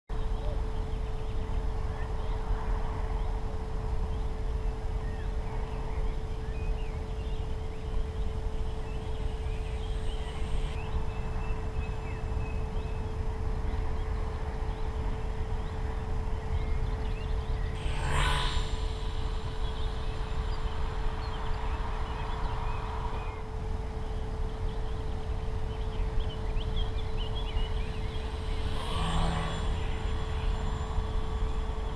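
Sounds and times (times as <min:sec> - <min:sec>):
steady hum: 0:00.1 - 0:31.9
faint chirps: 0:04.0 - 0:31.9
wind rumble: 0:08.0 - 0:25.6, 0:26.5 - 0:31.9
model plane propeller buzzing: 0:17.8 - 0:21.6, 0:27.5 - 0:31.9.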